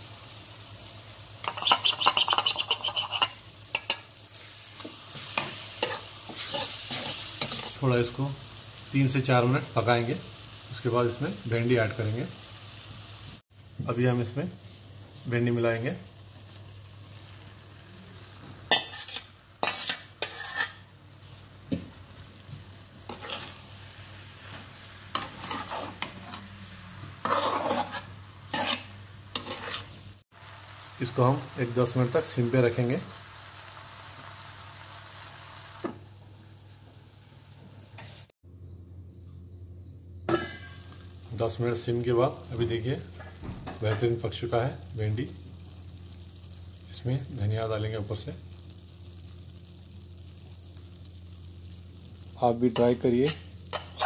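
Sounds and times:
food sizzling in oil: 0:00.0 - 0:38.4, 0:40.3 - 0:54.0
metal spatula scraping frying pan: 0:01.4 - 0:07.8, 0:18.7 - 0:20.9, 0:23.0 - 0:23.8, 0:24.4 - 0:30.0, 0:52.8 - 0:54.0.

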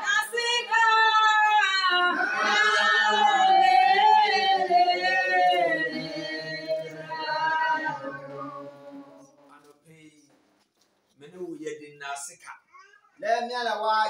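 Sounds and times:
women singing together: 0:00.0 - 0:09.4.

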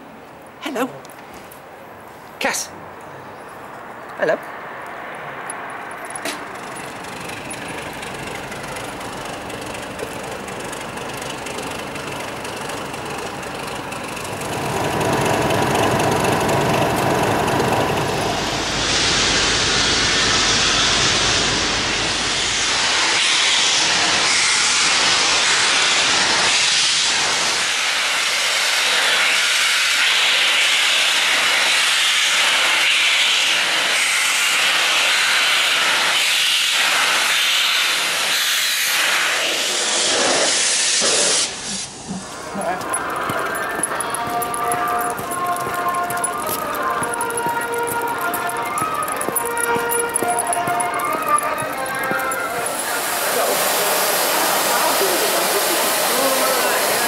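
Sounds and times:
locomotive rumble: 0:05.2 - 0:26.6, 0:41.4 - 0:57.0
steam hissing: 0:06.3 - 0:57.0.

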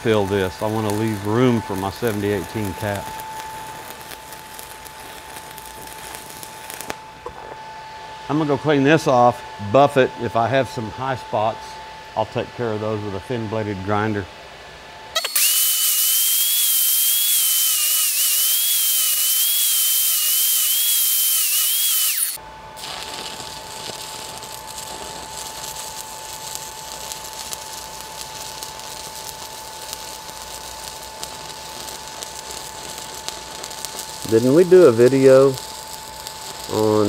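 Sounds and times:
welding arc crackling hiss: 0:00.0 - 0:07.6, 0:15.2 - 0:37.0
angle grinder whine: 0:00.0 - 0:11.8, 0:15.2 - 0:37.0.

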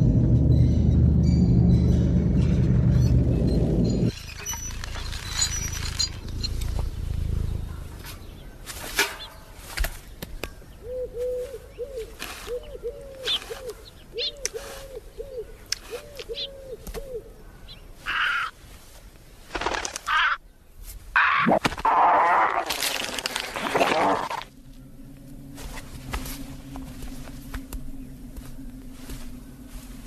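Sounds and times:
rustles and clicks: 0:02.3 - 0:10.6, 0:20.8 - 0:30.0.

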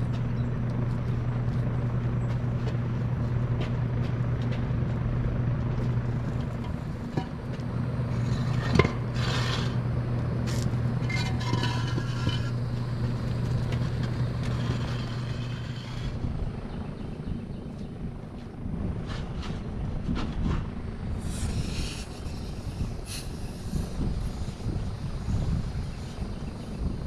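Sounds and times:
low mechanical hum: 0:00.0 - 0:27.0
tire scraping and rubbing: 0:05.7 - 0:16.4, 0:18.8 - 0:27.0.

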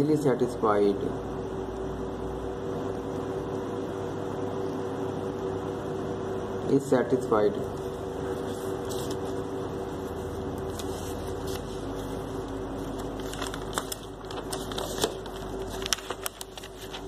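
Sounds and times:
steady background hum: 0:00.0 - 0:17.0
paper page turning and rustling: 0:07.8 - 0:09.4, 0:10.1 - 0:17.0.

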